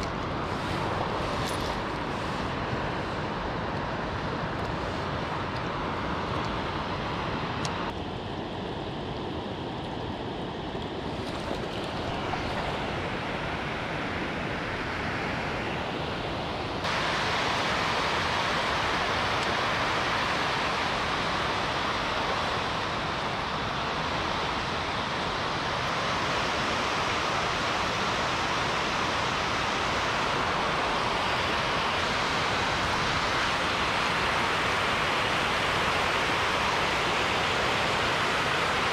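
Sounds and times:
water rushing over weir: 8.8 - 38.9.

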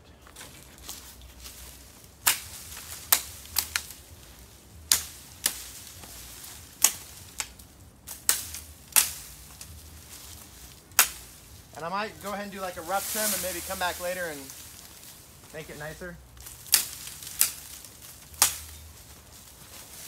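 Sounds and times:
machete chopping bamboo: 2.2 - 4.0, 4.8 - 9.8, 10.9 - 11.4, 16.4 - 18.9.

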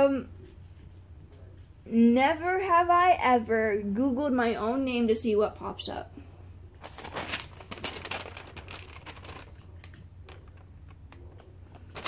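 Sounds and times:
paper rustling: 6.8 - 12.0.

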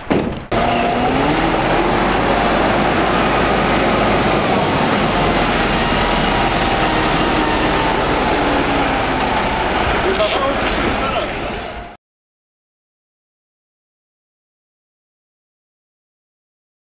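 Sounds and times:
truck diesel engine running: 0.5 - 12.0.

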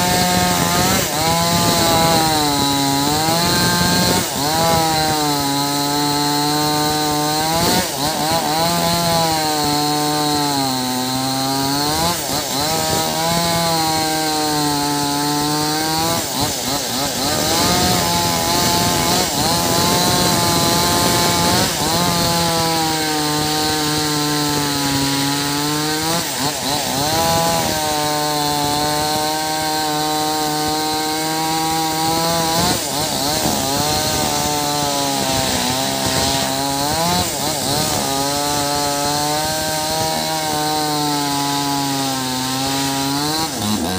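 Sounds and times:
chainsaw cutting wood: 0.0 - 43.9.

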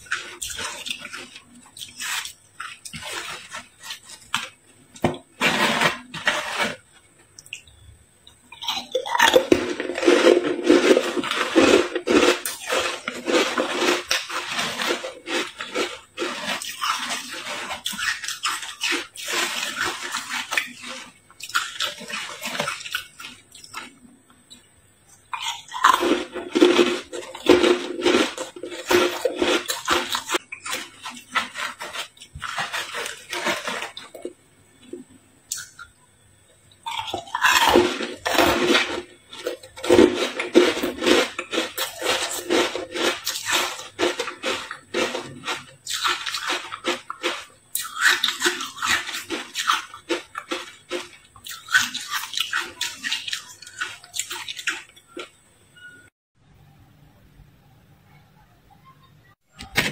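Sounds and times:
ice cubes crunched by teeth: 0.0 - 4.6, 8.6 - 23.9, 25.3 - 34.3, 36.9 - 55.3.

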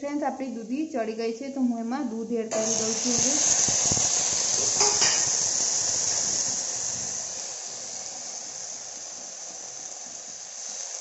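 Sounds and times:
vegetables sizzling in a pan: 2.5 - 11.0
milk bubbling: 3.1 - 11.0.

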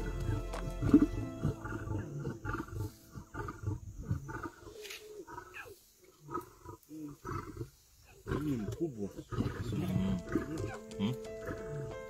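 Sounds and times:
background music: 0.0 - 4.0, 9.6 - 12.0
lion growling: 0.2 - 12.0.

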